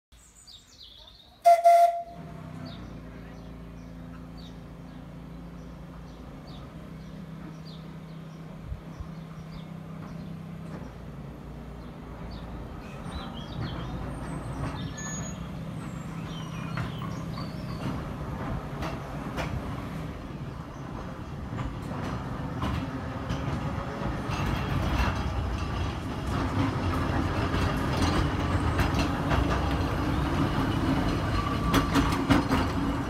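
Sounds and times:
birds chirping: 0:00.2 - 0:23.1
electric tram humming: 0:01.4 - 0:33.0
wheels clicking on rail: 0:01.5 - 0:33.0.

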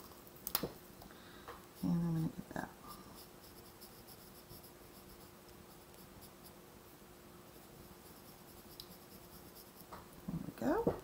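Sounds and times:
faint steady hum: 0:00.0 - 0:11.0
marker scratching on cardstock: 0:07.6 - 0:09.9.

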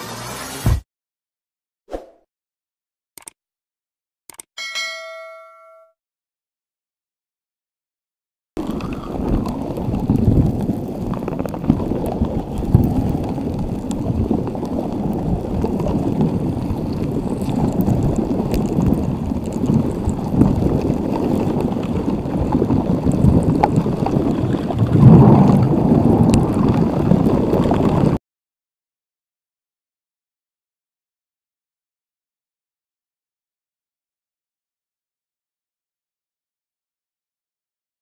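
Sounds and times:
ocean waves washing: 0:20.0 - 0:28.2.

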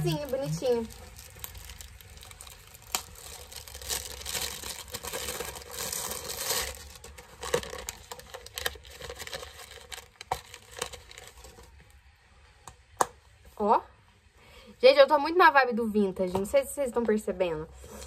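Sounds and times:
crinkly packaging rustling: 0:00.0 - 0:12.0.

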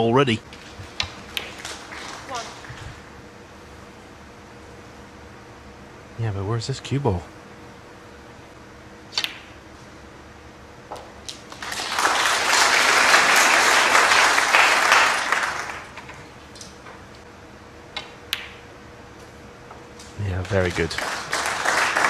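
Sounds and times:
audience applauding: 0:01.5 - 0:02.8, 0:11.5 - 0:16.0, 0:20.3 - 0:22.0.

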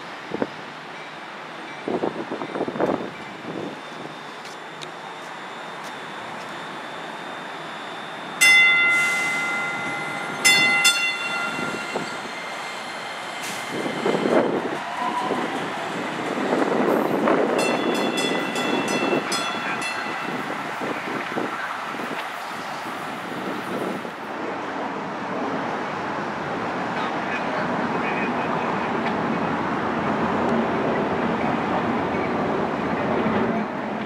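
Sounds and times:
train rumbling: 0:00.0 - 0:34.0
train bell ringing rapidly: 0:07.9 - 0:12.3, 0:17.5 - 0:20.9.

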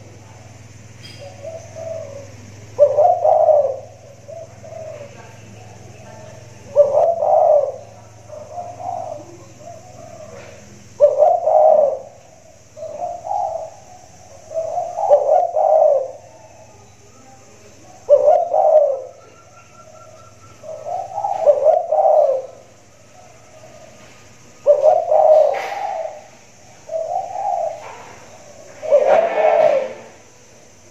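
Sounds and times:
dove cooing: 0:00.0 - 0:30.9.

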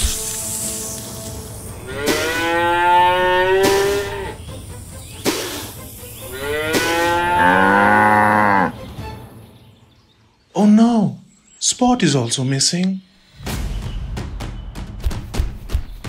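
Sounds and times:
cow mooing: 0:01.8 - 0:04.4, 0:06.3 - 0:08.8.

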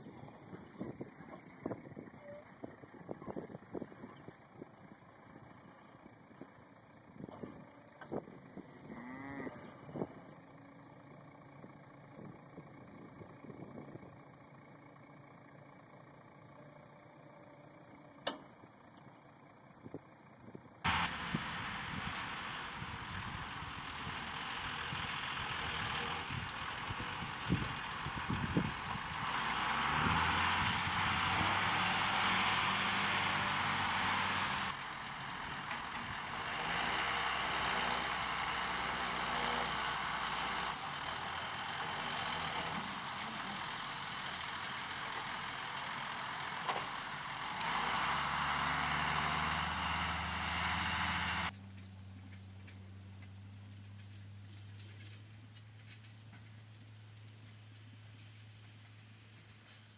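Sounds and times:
tractor engine running loudly: 0:20.3 - 0:51.5.

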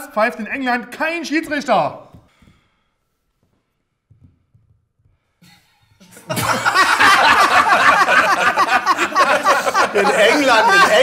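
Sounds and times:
men laughing loudly: 0:06.2 - 0:11.0.

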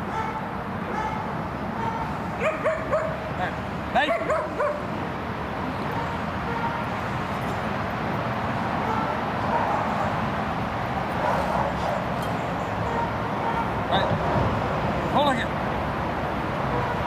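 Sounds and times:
distant road traffic hum: 0:00.0 - 0:17.0
dog yipping: 0:00.1 - 0:03.2, 0:04.0 - 0:04.8, 0:05.9 - 0:06.9, 0:12.8 - 0:13.8.

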